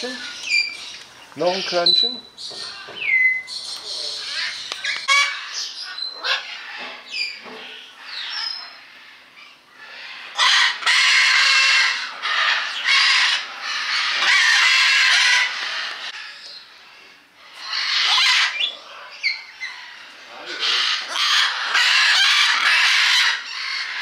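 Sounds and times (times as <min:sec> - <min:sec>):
soft bird chirps: 0:00.0 - 0:06.2
harsh bird calls: 0:00.0 - 0:24.0.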